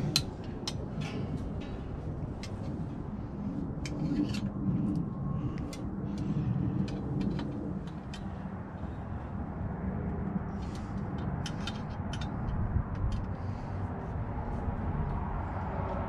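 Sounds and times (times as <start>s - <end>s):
hand tools clicking on metal: 0.0s - 1.7s, 10.6s - 13.3s
steady low rumble: 0.0s - 16.0s.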